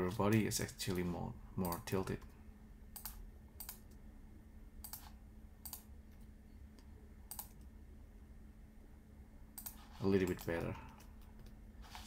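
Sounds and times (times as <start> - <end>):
low hum: 0.0 - 12.0
faint computer clicks: 4.8 - 5.9, 6.7 - 7.7, 9.6 - 11.6.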